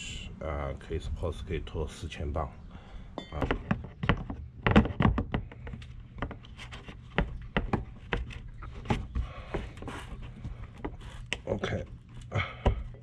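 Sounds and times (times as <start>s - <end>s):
steady low hum: 0.0s - 13.0s
scattered clicks and knocks: 3.2s - 9.7s
rubbing: 6.3s - 11.4s.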